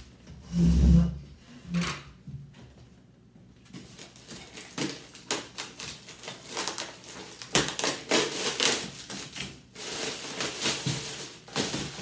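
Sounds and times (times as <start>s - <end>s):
plastic wrap crinkling: 3.6s - 12.0s.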